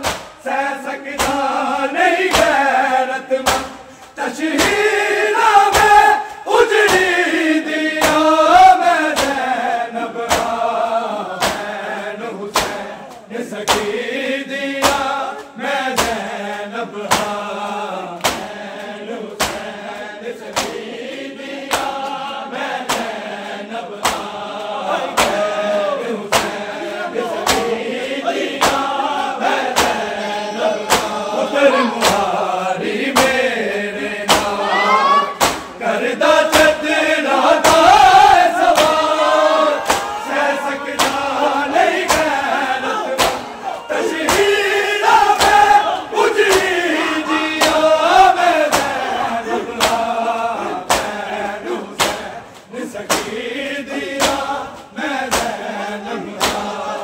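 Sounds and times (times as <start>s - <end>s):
hands slapping bare chests: 0.0s - 0.4s, 1.1s - 1.6s, 2.3s - 9.6s, 10.2s - 11.8s, 12.5s - 14.0s, 14.8s - 30.2s, 30.9s - 31.2s, 32.0s - 32.4s, 33.0s - 34.7s, 35.4s - 35.8s, 36.4s - 57.0s
crowd of men chanting: 0.0s - 57.0s.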